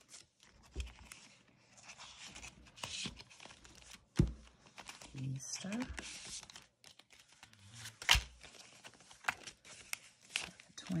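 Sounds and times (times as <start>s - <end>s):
paper rustling and crinkling: 0.0s - 11.0s.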